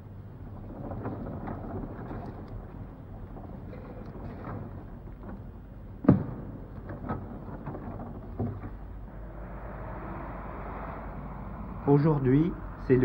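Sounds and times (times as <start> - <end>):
low hum: 0.0 - 13.0
sharp knocks and thuds: 6.0 - 8.8.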